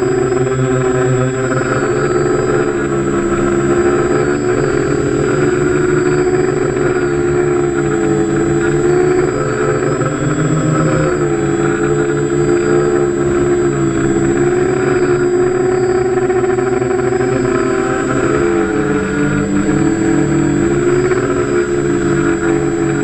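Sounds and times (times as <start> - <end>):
model aircraft rotors droning: 0.0 - 23.0
thin high whine: 0.0 - 23.0.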